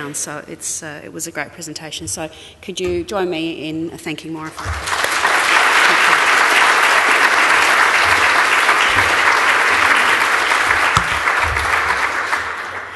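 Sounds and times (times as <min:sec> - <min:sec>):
audience applauding: 0:04.6 - 0:12.9.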